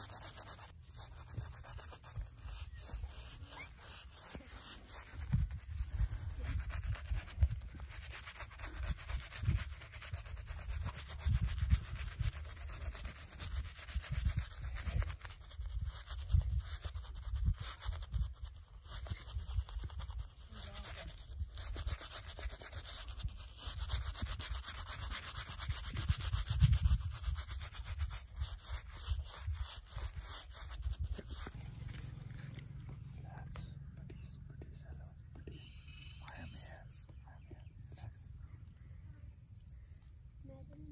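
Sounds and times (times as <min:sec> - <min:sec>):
shaving brush scrubbing beard: 0:00.0 - 0:32.6.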